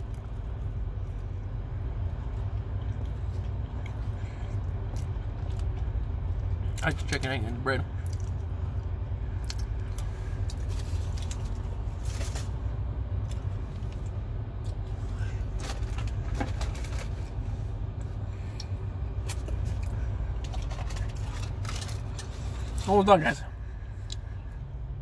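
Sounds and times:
steady low rumble: 0.0 - 25.0
paper wrappers crinkling: 20.4 - 22.8.

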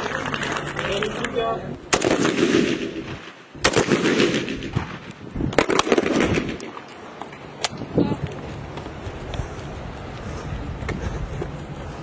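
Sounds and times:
gunshots with echo: 1.9 - 6.9.

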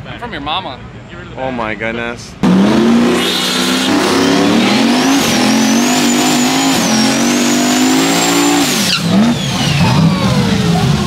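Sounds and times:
high whine: 2.4 - 10.7
race car engine revving: 2.4 - 11.0.

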